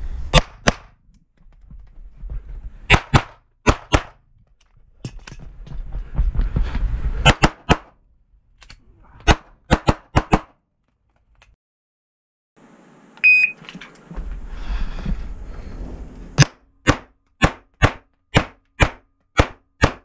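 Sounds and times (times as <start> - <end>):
rumbling movement noise: 0.9 - 2.9, 4.2 - 7.3, 13.6 - 16.4
shot timer beep: 13.2 - 13.6.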